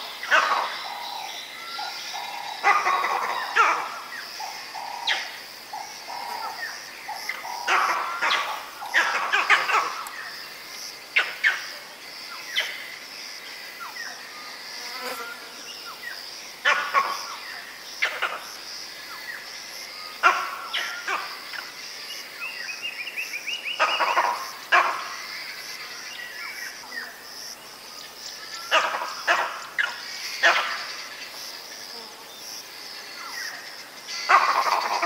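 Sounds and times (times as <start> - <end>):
high insect drone: 0.0 - 35.0
monkey barking alarm calls: 0.2 - 10.4, 16.6 - 18.4, 20.2 - 21.4, 23.7 - 25.2, 28.6 - 30.9, 34.2 - 35.0.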